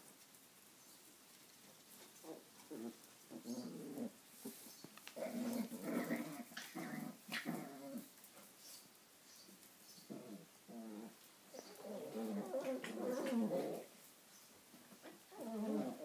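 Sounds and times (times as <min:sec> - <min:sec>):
puppies play-growling: 0:01.9 - 0:08.6, 0:10.0 - 0:14.0, 0:14.9 - 0:16.0.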